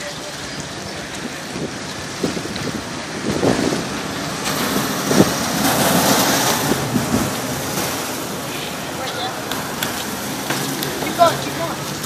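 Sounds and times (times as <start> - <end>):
bicycle tyres on asphalt: 0.0 - 12.0
wind on microphone: 0.4 - 8.4.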